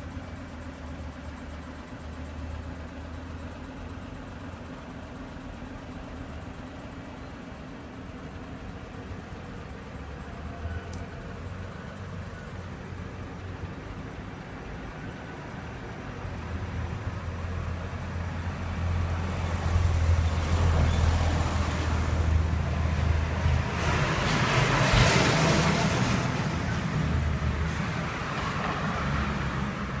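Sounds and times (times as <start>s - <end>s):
low traffic engine hum: 0.0s - 30.0s
vehicle passing by: 18.8s - 30.0s.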